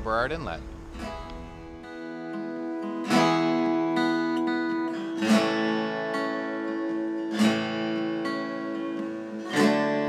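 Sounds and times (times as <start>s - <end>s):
acoustic guitar strumming: 0.0s - 10.0s.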